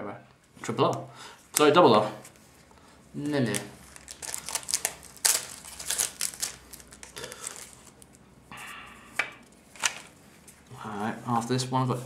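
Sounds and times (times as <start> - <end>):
foil wrapper crinkling and tearing: 3.3 - 8.1.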